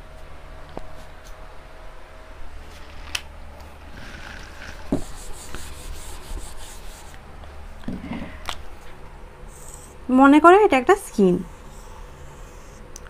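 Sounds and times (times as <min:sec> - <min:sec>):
marker scratching on whiteboard: 0:04.0 - 0:07.2.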